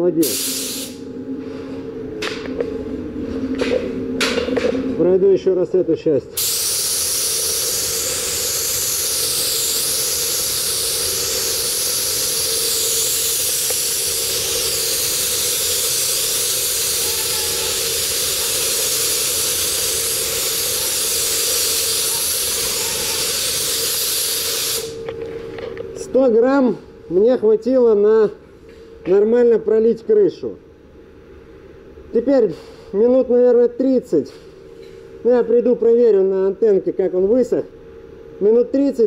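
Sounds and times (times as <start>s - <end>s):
spray gun hissing: 0.2s - 1.0s, 6.4s - 25.0s.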